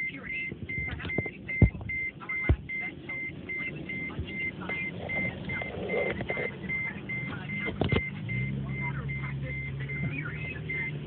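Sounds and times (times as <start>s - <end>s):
rapid electronic beeping: 0.0s - 11.0s
loud thumps: 0.6s - 2.8s.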